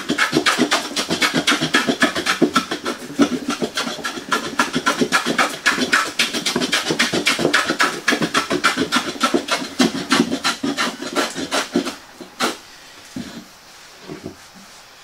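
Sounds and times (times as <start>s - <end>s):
hand plane cutting wood: 0.0s - 12.6s.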